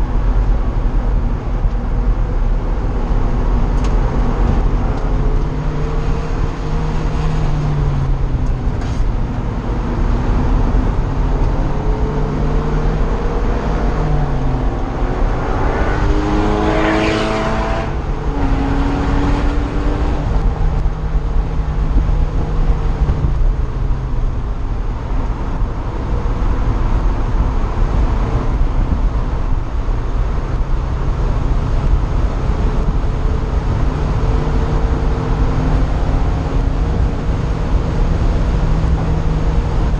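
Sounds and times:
sports car engine revving: 1.8 - 23.8.

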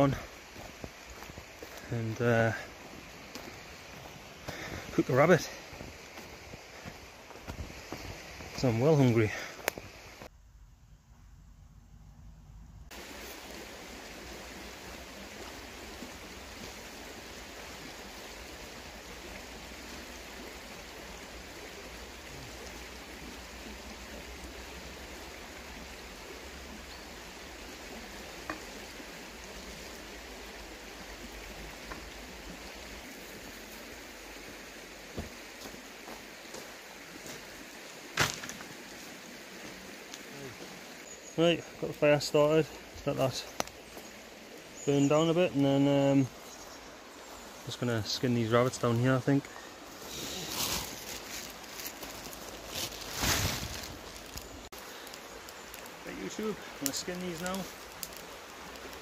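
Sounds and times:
river running over stones: 0.0 - 10.3, 12.9 - 59.0.

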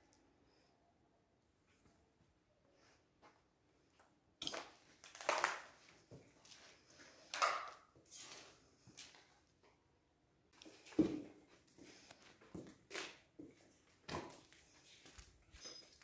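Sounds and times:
footsteps on rubble and glass: 4.4 - 9.2, 12.4 - 16.0.

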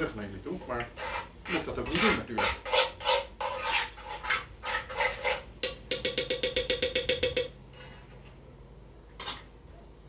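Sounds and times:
utensil scraping sauce in a pan: 0.4 - 5.8.

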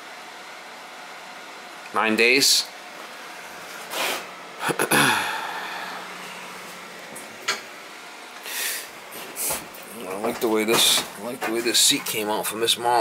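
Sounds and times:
footsteps and handling knocks: 9.2 - 12.2.

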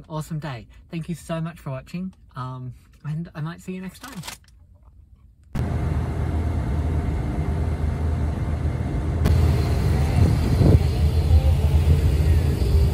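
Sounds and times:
ship engine drone: 5.6 - 12.9.

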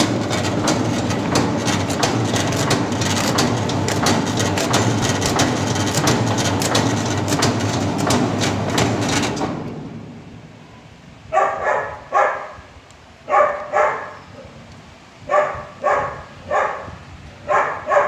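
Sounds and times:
rattle of roller chains: 0.0 - 9.5
machine motor hum: 0.0 - 10.4.

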